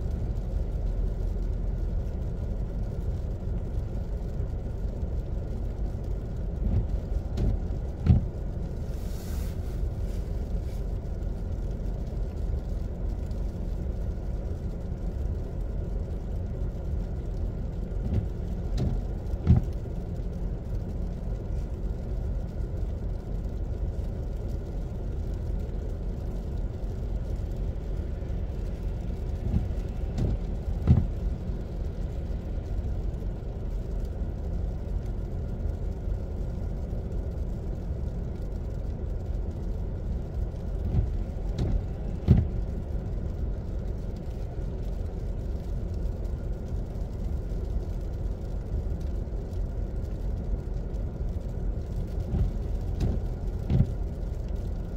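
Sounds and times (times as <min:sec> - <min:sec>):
short soft thumps: 0:06.7 - 0:08.4, 0:18.0 - 0:19.8, 0:29.4 - 0:31.2, 0:40.9 - 0:42.6, 0:52.3 - 0:54.0.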